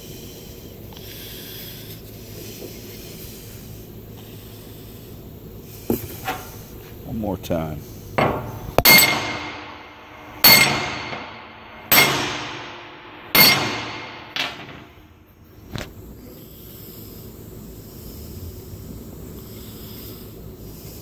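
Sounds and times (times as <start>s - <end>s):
hammer blows ringing: 8.2s - 15.1s.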